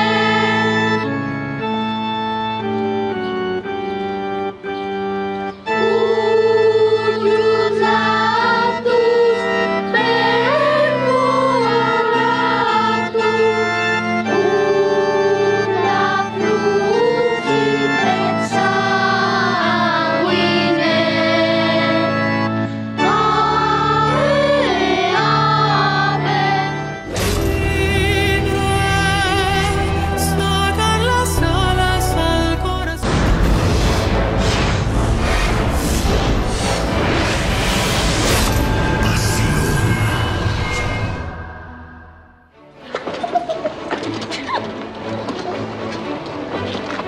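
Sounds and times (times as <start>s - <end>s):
children's choir singing a hymn: 0.0s - 2.0s, 5.6s - 32.9s
music: 0.0s - 47.0s
organ chords: 0.0s - 47.0s.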